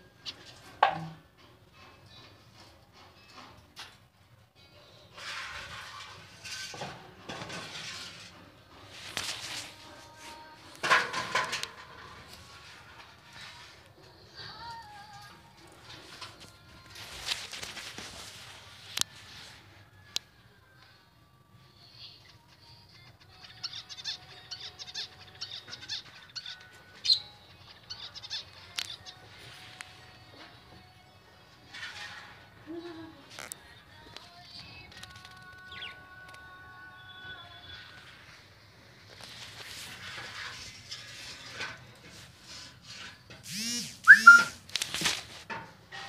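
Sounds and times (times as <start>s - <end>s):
loud rising-and-falling bird calls: 44.1s - 44.6s
short whistled note: 44.1s - 44.6s.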